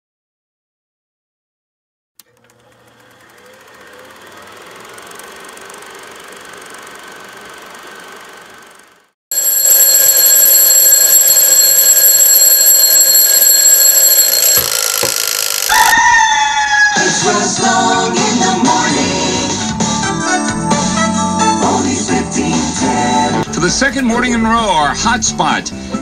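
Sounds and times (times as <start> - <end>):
faint mechanical whir: 2.2 - 9.1
alarm clock bells ringing: 9.3 - 15.9
music: 17.0 - 26.0.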